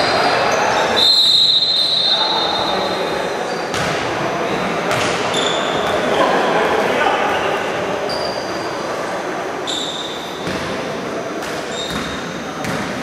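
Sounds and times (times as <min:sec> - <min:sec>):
shoes squeaking on hardwood floor: 0:11.7 - 0:12.4.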